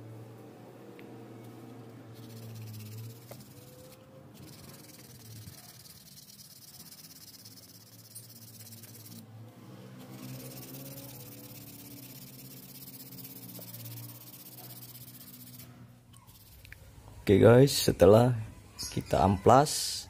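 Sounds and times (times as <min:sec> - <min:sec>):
low steady hum: 0:00.0 - 0:19.4
sandpaper rubbing on wood: 0:02.2 - 0:09.2, 0:10.0 - 0:15.7.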